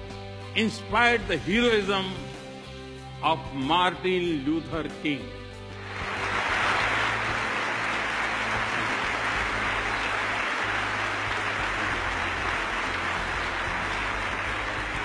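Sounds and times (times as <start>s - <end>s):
large audience applauding: 5.7s - 15.0s.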